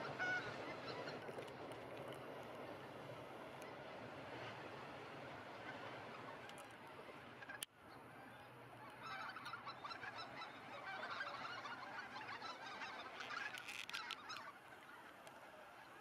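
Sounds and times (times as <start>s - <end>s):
geese honking: 8.2s - 16.0s.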